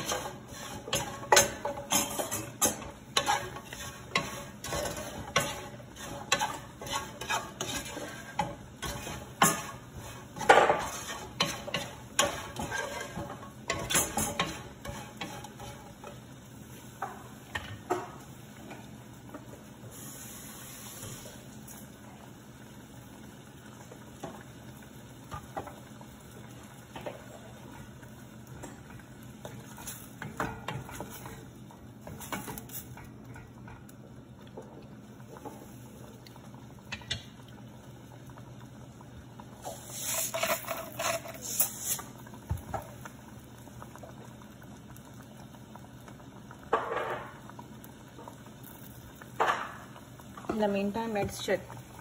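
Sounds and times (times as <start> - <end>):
spatula scraping a pot: 0.0 - 16.1, 39.6 - 42.1
gravy simmering: 0.0 - 52.0.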